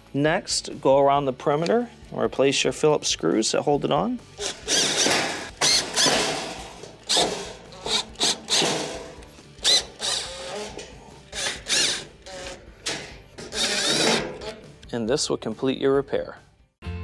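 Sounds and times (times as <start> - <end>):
cordless drill driving screws: 4.4 - 14.6.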